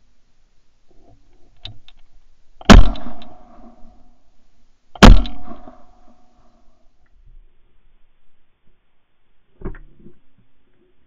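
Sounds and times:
shotgun shots: 2.6 - 3.8, 5.0 - 6.0.

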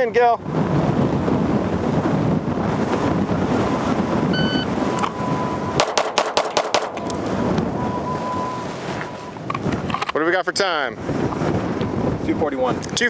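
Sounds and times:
wind on microphone: 0.0 - 13.0
shot timer beep: 4.3 - 5.8
rapid pistol shots: 5.8 - 7.0.

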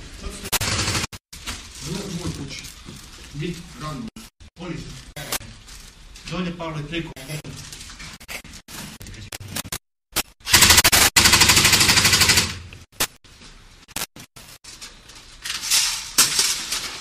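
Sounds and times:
rapid automatic gunfire: 0.5 - 1.2, 10.5 - 12.6.

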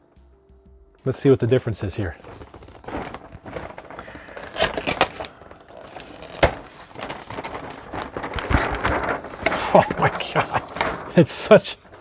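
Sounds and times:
cardboard flaps scraping and rustling: 1.8 - 12.0.

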